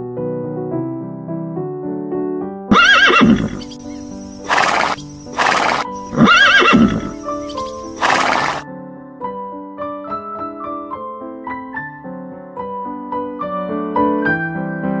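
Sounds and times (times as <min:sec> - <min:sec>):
horse neighing: 0:02.7 - 0:08.6.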